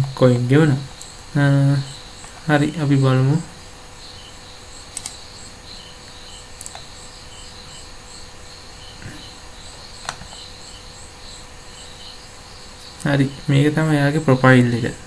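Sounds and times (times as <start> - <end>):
crickets chirping: 0.0 - 15.0
sharp clicks: 1.0 - 1.2, 4.9 - 5.3, 6.0 - 6.9.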